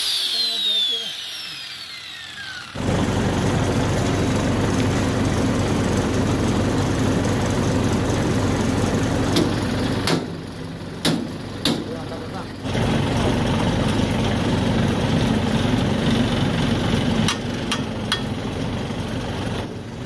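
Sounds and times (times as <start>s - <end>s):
angle grinder spinning down: 0.0s - 4.4s
machine running: 0.0s - 17.4s
sharp metal knocks: 11.0s - 11.9s.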